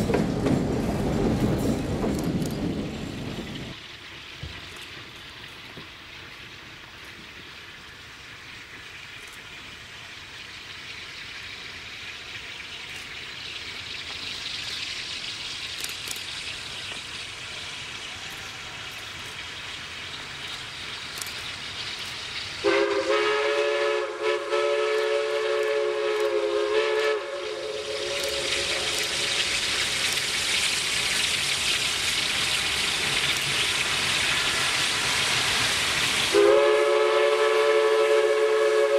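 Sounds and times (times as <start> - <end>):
train running: 0.0 - 38.9
train whistle blast: 22.6 - 29.4, 36.3 - 38.9.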